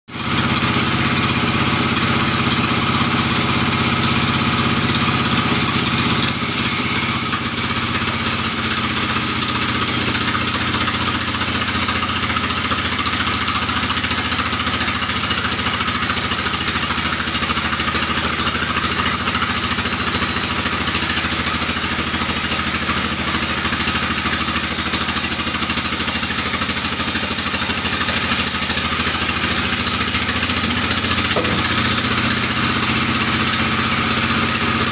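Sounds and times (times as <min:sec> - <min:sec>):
band sawmill drone: 0:00.2 - 0:11.6, 0:27.3 - 0:34.9.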